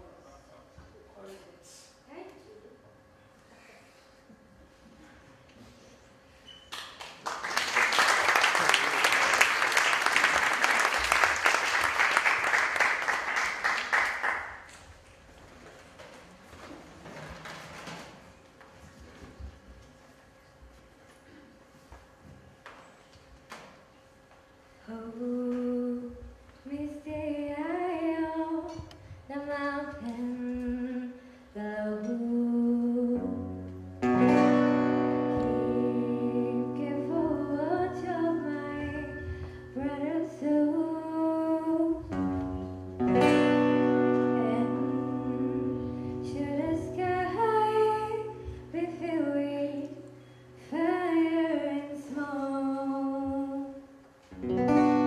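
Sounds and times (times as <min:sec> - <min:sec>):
woman singing into a microphone: 0:24.9 - 0:33.6, 0:35.2 - 0:42.2, 0:43.8 - 0:50.0, 0:50.6 - 0:53.8
acoustic guitar: 0:32.1 - 0:52.5, 0:54.2 - 0:55.0.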